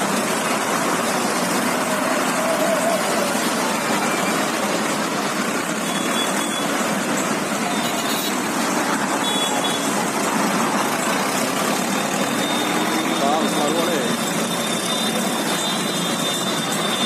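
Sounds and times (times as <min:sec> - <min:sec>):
tractors driving past: 0:00.0 - 0:17.0.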